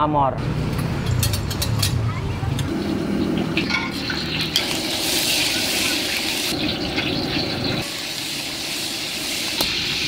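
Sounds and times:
oil sizzling in a wok: 2.7s - 10.0s.

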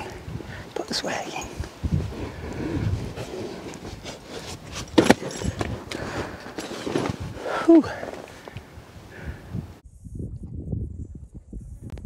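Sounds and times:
canvas thudding and rustling: 2.9s - 8.3s.

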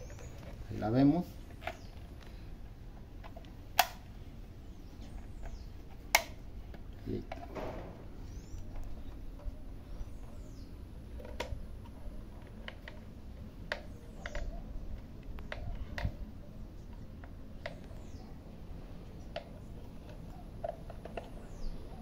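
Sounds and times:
plastic parts clicking and knocking: 5.1s - 9.5s, 11.1s - 16.3s.

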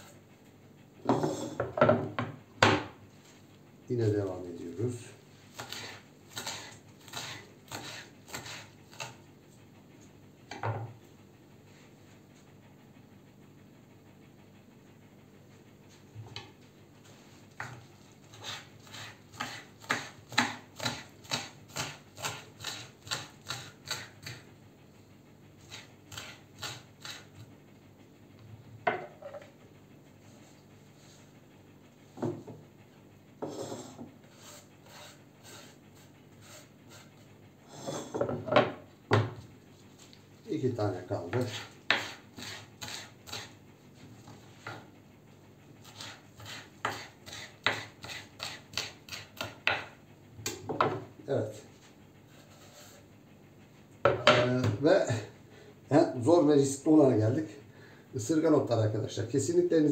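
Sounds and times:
knife scraping across board: 1.0s - 1.8s, 5.5s - 9.2s, 17.6s - 24.4s, 25.6s - 27.4s, 33.4s - 38.5s, 41.3s - 44.8s, 45.8s - 49.9s, 52.3s - 53.0s
knife chopping on wooden board: 5.6s - 9.2s, 17.6s - 24.4s, 41.3s - 43.5s, 45.8s - 51.0s, 54.0s - 54.8s.

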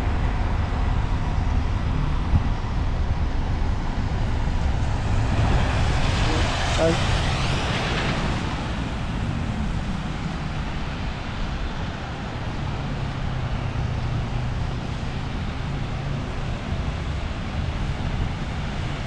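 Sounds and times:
vehicle engine drone: 0.0s - 19.0s.

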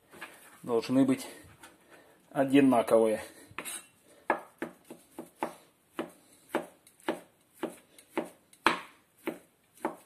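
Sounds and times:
knife chopping on cutting board: 3.6s - 10.0s.

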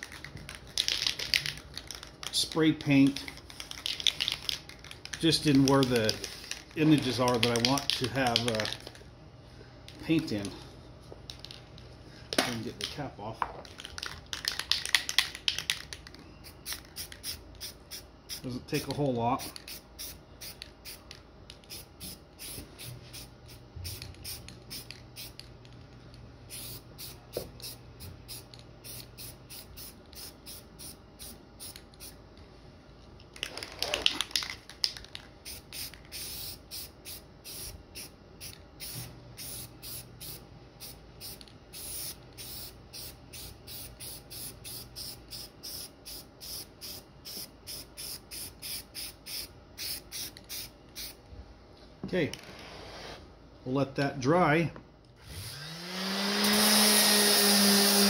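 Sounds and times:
spray paint can hissing: 16.6s - 18.4s, 19.5s - 21.0s, 21.6s - 25.4s, 26.5s - 32.1s, 33.8s - 51.2s.

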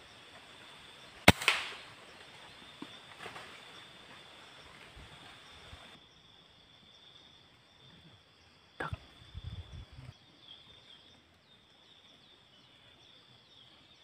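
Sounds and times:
insects buzzing: 0.0s - 14.0s
air rifle shot: 1.2s - 2.0s.

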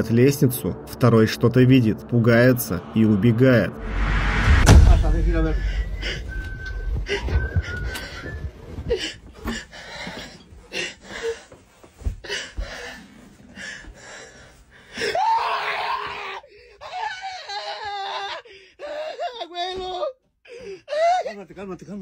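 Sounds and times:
footsteps on stairs: 6.0s - 14.5s
man crying out in panic: 15.1s - 18.4s
man screaming: 15.1s - 18.4s.

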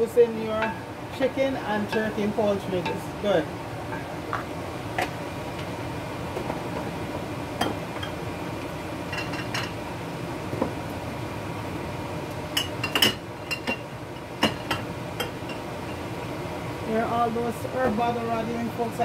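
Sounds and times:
steady low hum: 0.0s - 19.0s
dishes and utensils clinking: 9.1s - 9.8s, 12.6s - 16.0s.

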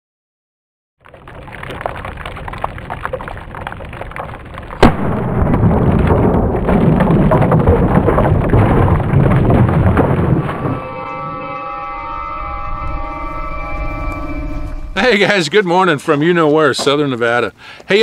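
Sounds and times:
pumpkin bursting: 1.0s - 11.2s
steady rushing crackling noise: 1.0s - 11.4s.

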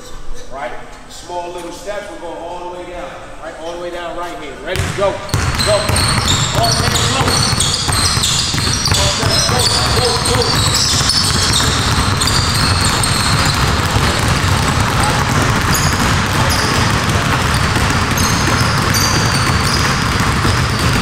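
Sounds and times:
basketballs bouncing on a court: 4.7s - 21.0s
shoe squeaks: 5.2s - 21.0s.

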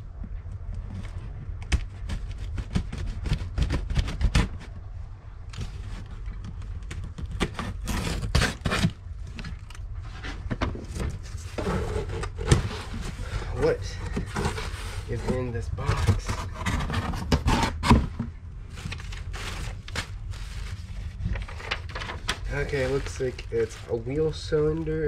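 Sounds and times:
low steady hum: 0.0s - 25.0s
packing tape torn off cardboard: 7.0s - 9.7s.

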